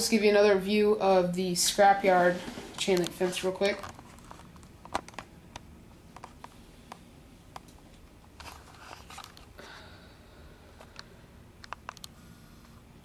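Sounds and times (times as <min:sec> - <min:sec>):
camera handling clicks and rustles: 0:03.8 - 0:06.6, 0:07.6 - 0:09.5.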